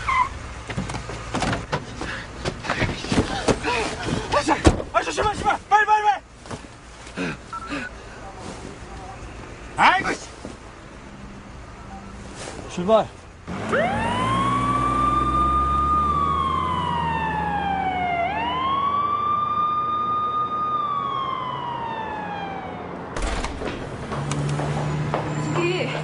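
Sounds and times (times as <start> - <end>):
low vehicle hum: 0.0 - 26.0
emergency vehicle siren wailing: 13.5 - 23.2.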